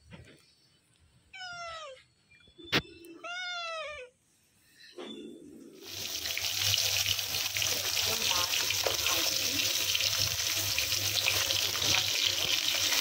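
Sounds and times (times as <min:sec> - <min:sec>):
cat meowing: 0:01.3 - 0:02.1, 0:03.1 - 0:04.2
running water: 0:05.8 - 0:13.0.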